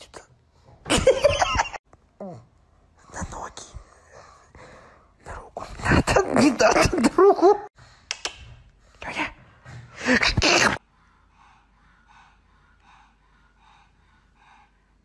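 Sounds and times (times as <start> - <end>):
dog breathing: 7.8 - 15.0.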